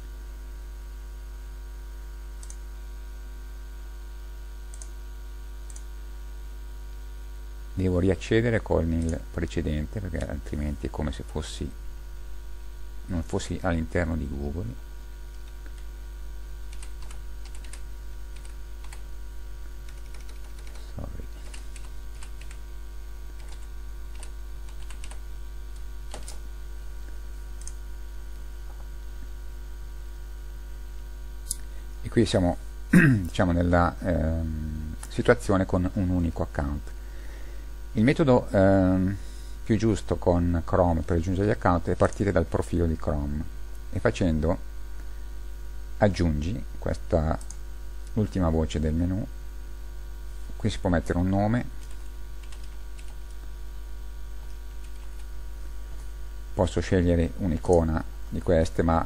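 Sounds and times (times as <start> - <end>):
electrical mains hum: 0.0 - 59.0
faint computer mouse clicks: 2.4 - 2.6.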